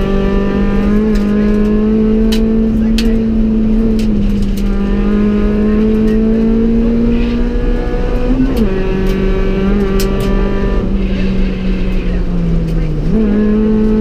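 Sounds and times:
car engine at high revs: 0.0s - 14.0s
sharp clicks and knocks: 0.8s - 5.0s, 8.0s - 10.7s.

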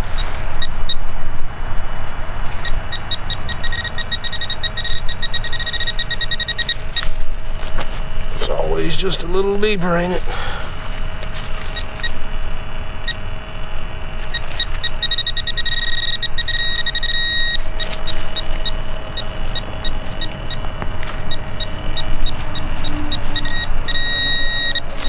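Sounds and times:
metal detector beeping: 0.0s - 1.0s, 2.5s - 13.3s, 14.1s - 25.0s
dirt rustling: 6.1s - 12.2s, 16.9s - 25.0s.

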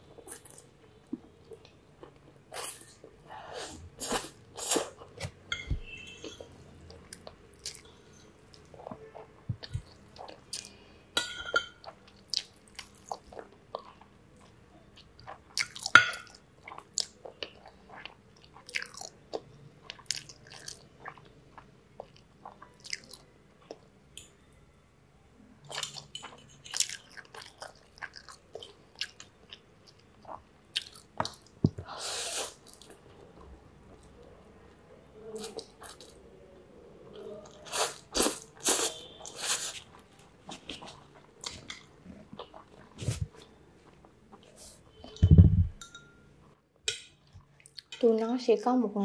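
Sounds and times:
wet chewing and slurping: 37.5s - 44.6s.

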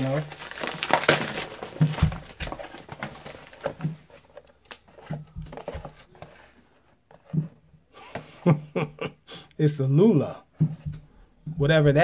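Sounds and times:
cardboard box being handled: 0.0s - 7.6s.

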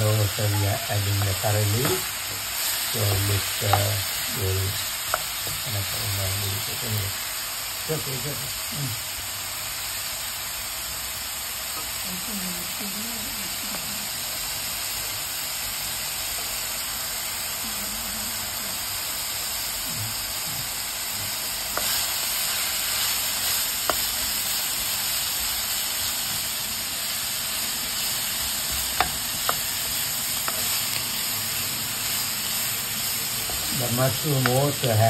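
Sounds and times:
food sizzling in a pan: 0.0s - 35.0s
spatula knocking on pan: 28.7s - 29.7s.

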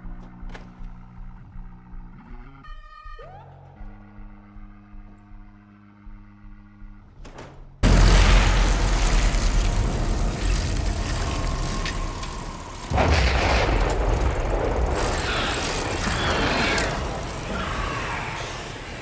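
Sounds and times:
deep rumbling sound effects: 7.8s - 19.0s.

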